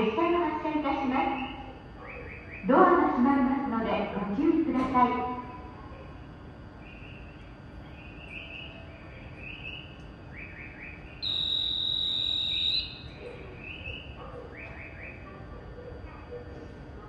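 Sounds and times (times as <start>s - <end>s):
bird-like chirps: 6.8s - 11.7s.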